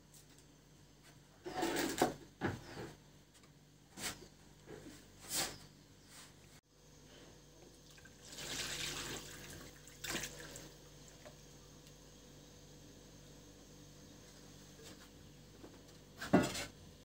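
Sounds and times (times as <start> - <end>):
liquid pouring into plastic bowl: 7.8 - 11.3.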